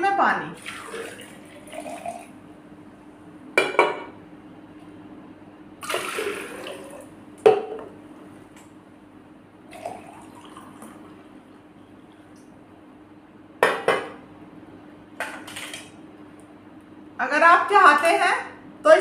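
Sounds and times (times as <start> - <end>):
water pouring into glass jar: 0.6 - 2.3, 9.7 - 10.9.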